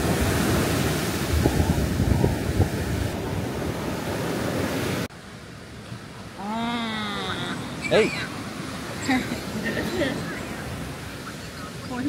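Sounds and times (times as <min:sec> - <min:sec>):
wind buffeting microphone: 0:00.0 - 0:05.1
sea surf washing on beach: 0:00.0 - 0:12.0.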